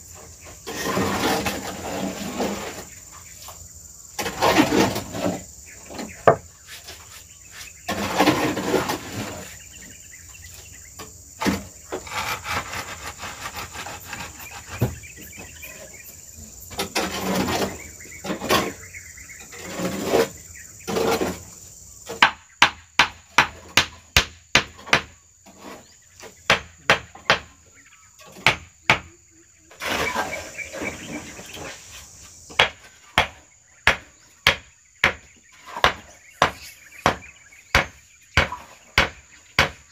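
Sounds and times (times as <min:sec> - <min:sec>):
high insect drone: 0:00.0 - 0:24.2, 0:25.2 - 0:39.9.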